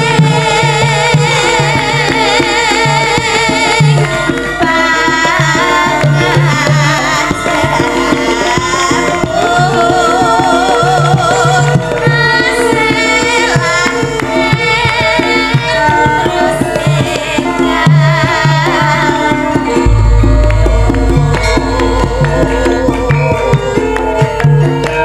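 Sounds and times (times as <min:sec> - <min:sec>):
woman singing with vibrato: 0:00.0 - 0:24.5
hand drums steady pattern: 0:00.0 - 0:25.0
band playing: 0:19.6 - 0:25.0.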